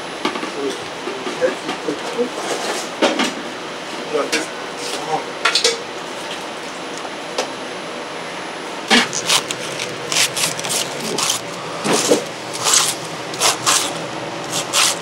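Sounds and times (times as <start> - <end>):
steady room hum: 0.0 - 15.0
peeler scraping: 8.9 - 15.0.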